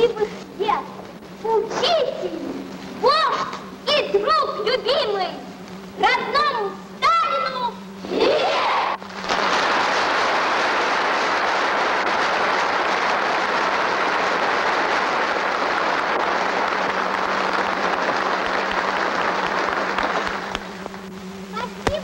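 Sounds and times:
low soundtrack hum: 0:00.0 - 0:22.0
audience applauding: 0:09.0 - 0:21.0.

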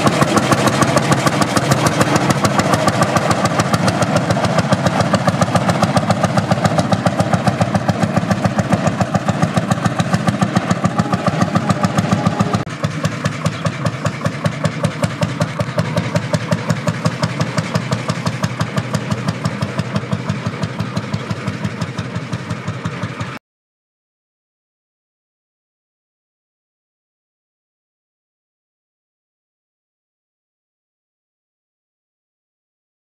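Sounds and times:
tractor engine running: 0:00.0 - 0:23.4.

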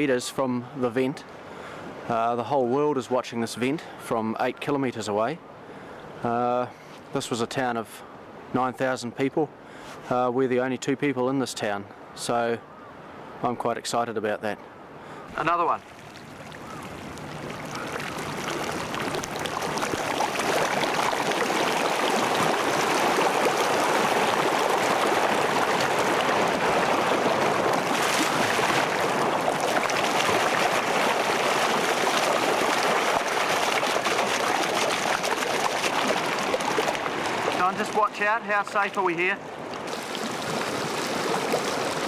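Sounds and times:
water rushing across street: 0:15.3 - 0:42.0.

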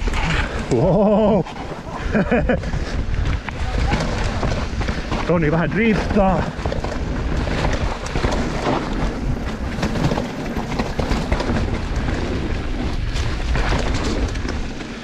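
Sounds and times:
bike clattering over bumps: 0:00.0 - 0:15.0
bike tyres rolling and skidding: 0:00.0 - 0:15.0
wind rumbling on microphone: 0:00.0 - 0:15.0.

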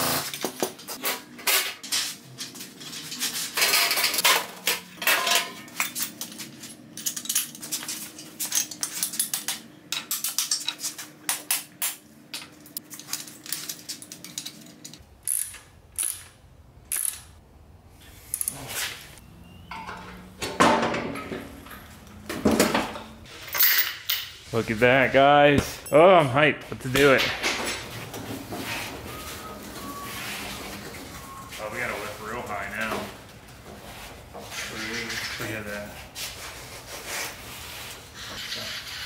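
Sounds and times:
metal parts clanking and rattling: 0:01.0 - 0:11.0, 0:12.5 - 0:16.3, 0:19.7 - 0:24.4.

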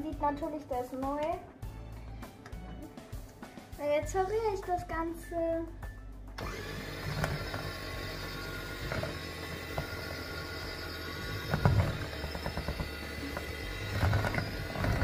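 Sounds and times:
electric hand mixer whisking: 0:06.4 - 0:15.0.

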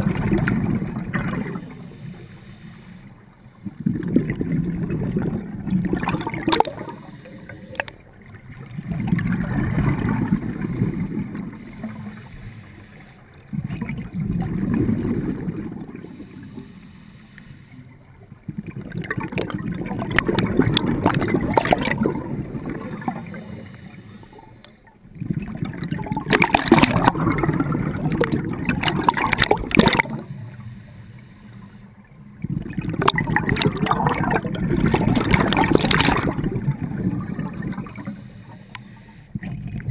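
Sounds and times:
bubbles gurgling underwater: 0:00.0 - 0:02.0, 0:03.6 - 0:12.2, 0:13.4 - 0:16.4, 0:18.3 - 0:23.8, 0:25.1 - 0:30.6, 0:32.3 - 0:38.2, 0:39.4 - 0:39.9
diver breathing through regulator: 0:01.5 - 0:03.9, 0:06.4 - 0:08.0, 0:10.5 - 0:13.4, 0:15.9 - 0:18.2, 0:22.6 - 0:25.0, 0:29.6 - 0:32.0, 0:37.9 - 0:39.6.

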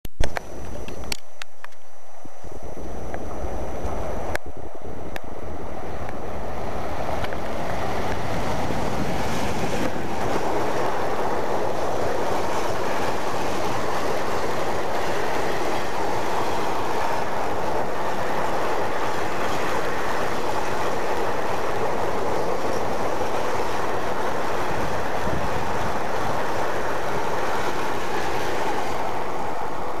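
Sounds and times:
train wheels on rails: 0:00.2 - 0:30.0.

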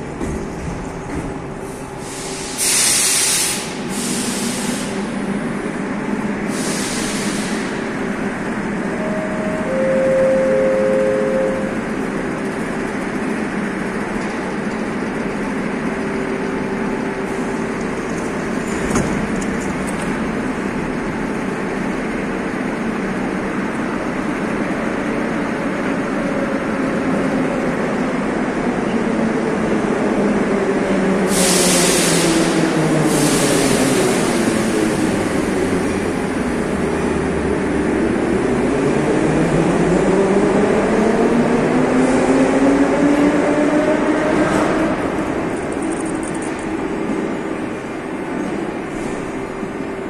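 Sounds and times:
subway train rumble and hum: 0:00.0 - 0:50.0
compressed air hiss: 0:02.0 - 0:05.0, 0:06.5 - 0:07.8.

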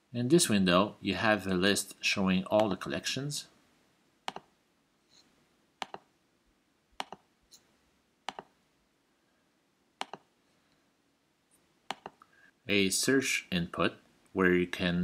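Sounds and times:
mouse button clicking: 0:04.3 - 0:04.5, 0:05.8 - 0:06.1, 0:07.0 - 0:07.6, 0:08.3 - 0:08.5, 0:10.0 - 0:10.3, 0:11.9 - 0:12.2.

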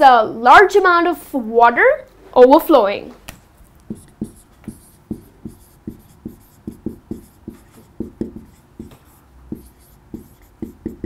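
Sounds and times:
marker writing on whiteboard: 0:03.6 - 0:11.0.

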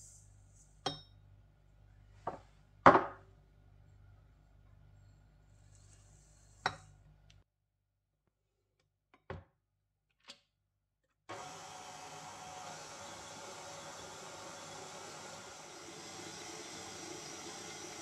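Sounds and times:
stand mixer motor running: 0:11.3 - 0:18.0.

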